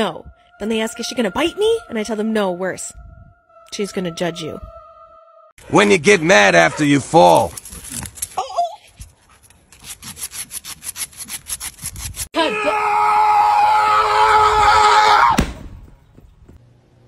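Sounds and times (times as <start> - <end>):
dog claws scraping concrete: 7.2 - 8.4.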